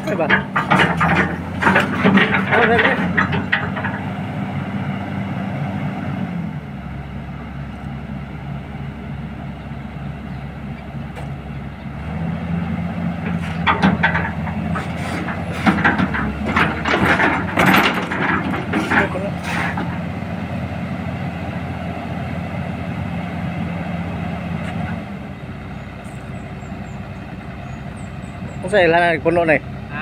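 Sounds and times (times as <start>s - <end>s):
excavator diesel engine running: 0.0s - 30.0s.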